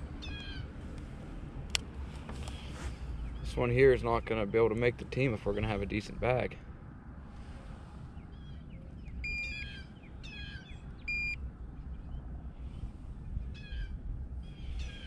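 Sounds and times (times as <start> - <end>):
birds calling: 0.0 - 0.7, 8.0 - 15.0
digital scale beeping: 9.2 - 9.7, 11.1 - 11.4.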